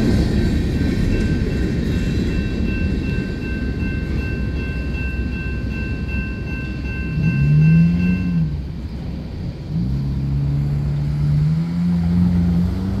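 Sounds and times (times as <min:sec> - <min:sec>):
railroad crossing warning bell: 0:00.0 - 0:09.8
vehicle engines accelerating: 0:06.7 - 0:13.0.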